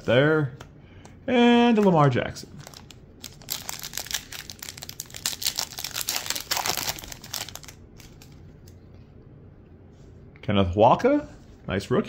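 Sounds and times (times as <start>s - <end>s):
foil wrapper tearing and crinkling: 2.6s - 8.4s.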